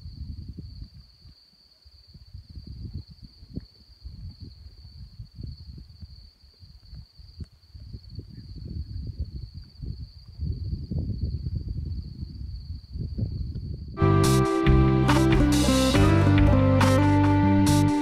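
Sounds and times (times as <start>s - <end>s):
wind buffeting microphone: 0.0s - 1.3s, 2.1s - 14.0s
crickets chirring: 0.0s - 14.0s.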